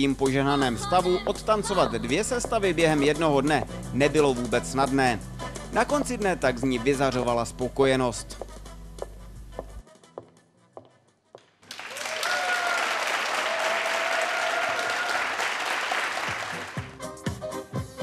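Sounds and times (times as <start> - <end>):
audience applauding: 11.6 - 16.9
person cheering: 11.9 - 15.6
music with a beat: 16.5 - 18.0.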